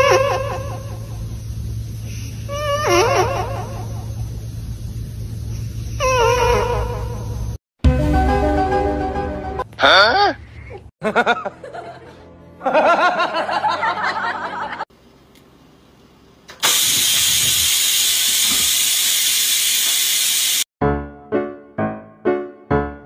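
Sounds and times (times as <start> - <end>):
rice cooker venting steam: 16.5 - 20.7.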